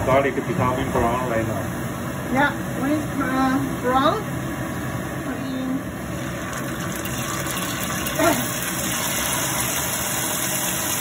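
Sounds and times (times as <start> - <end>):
low steady hum: 0.0 - 11.0
garlic sizzling in hot oil: 6.0 - 11.0.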